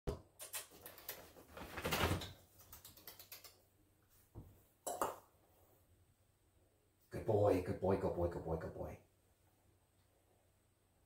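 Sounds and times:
rabbit scuffling: 1.0 - 2.5.

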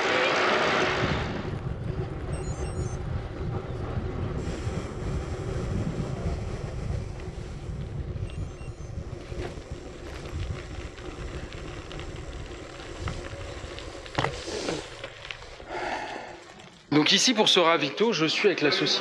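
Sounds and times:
tyres rolling on tarmac: 0.0 - 19.0
wind noise on microphone: 0.6 - 14.9.

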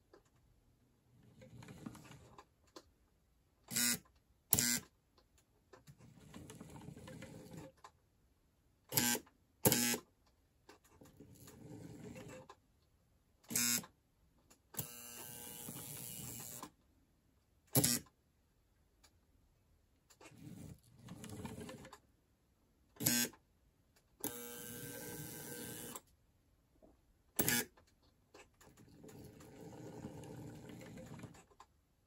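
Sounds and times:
small electric motor and gears whirring: 14.8 - 16.7, 24.2 - 26.0
buzzing clicks: 17.7 - 18.1.

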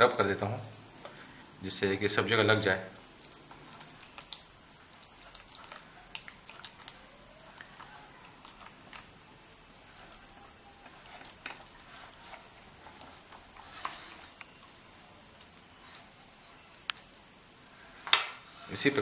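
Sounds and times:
wet squishing of basting brush: 2.1 - 17.0.

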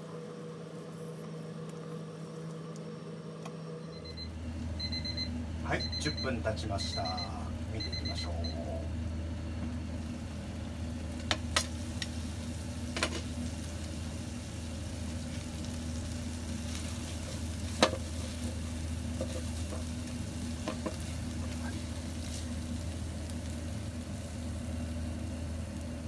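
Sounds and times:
steady low hum: 0.0 - 26.0
food sizzling in a frying pan: 8.1 - 26.0.

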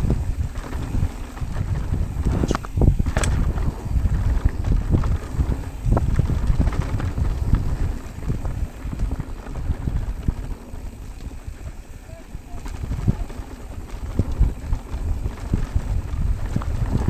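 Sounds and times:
mountain bike clicks and rattles: 0.0 - 17.0
wind buffeting microphone: 0.0 - 17.0.

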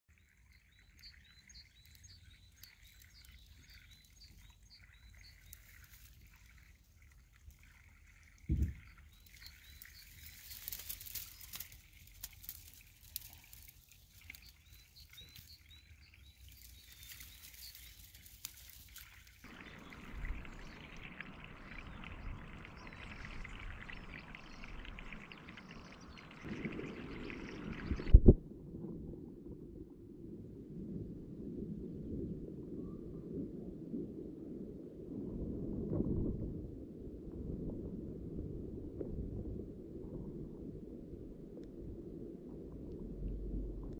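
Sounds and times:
birdsong chirping: 0.1 - 6.7, 7.7 - 28.1
thump: 8.5 - 8.8.

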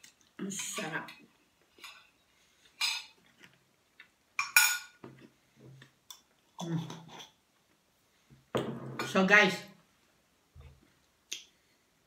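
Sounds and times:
cutlery clinking on a plate: 4.4 - 5.0.

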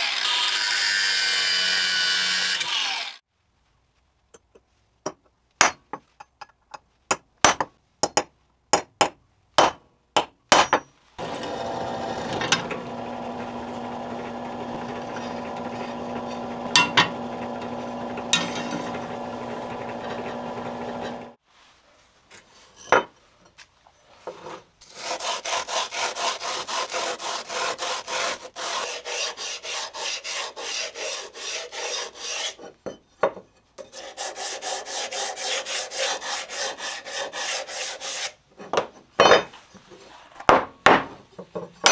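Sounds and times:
drill press drilling steel: 11.2 - 21.4
hammer tapping metal punch: 16.7 - 17.2
sanding block scrubbing metal: 24.8 - 32.6, 33.8 - 38.4.

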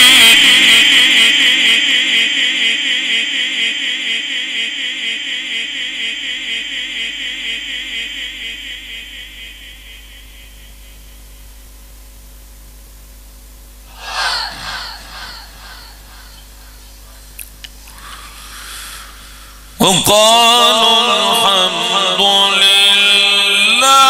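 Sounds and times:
person chanting recitation: 0.0 - 10.5, 13.9 - 24.0
low steady hum: 6.4 - 23.8.

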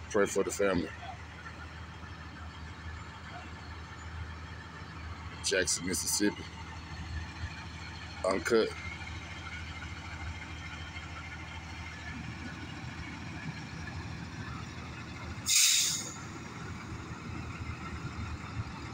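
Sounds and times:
diesel engine idling: 0.0 - 18.9
air brakes hissing: 15.4 - 16.3.

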